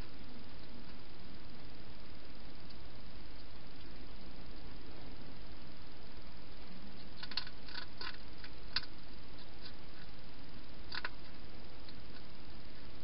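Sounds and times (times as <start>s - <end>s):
steady hiss: 0.0s - 13.0s
hedgehog crunching food: 7.0s - 10.2s, 10.8s - 12.3s.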